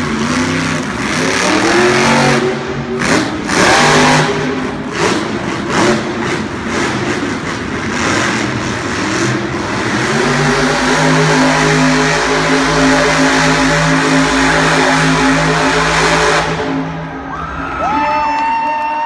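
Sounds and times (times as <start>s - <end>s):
monster truck engine revving: 0.0s - 17.7s.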